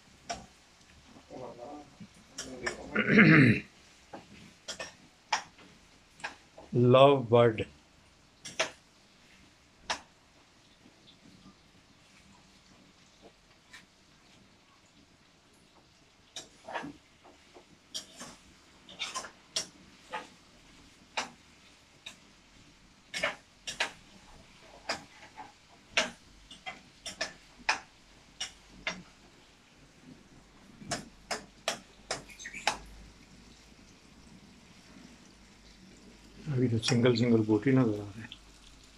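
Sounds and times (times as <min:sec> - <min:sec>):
lovebirds chirping: 0:32.2 - 0:32.8.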